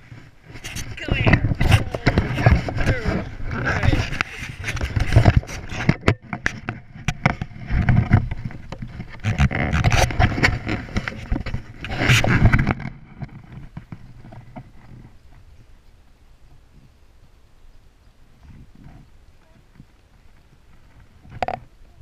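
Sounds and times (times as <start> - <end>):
camera handling knocks and scrapes: 0.6 - 13.8.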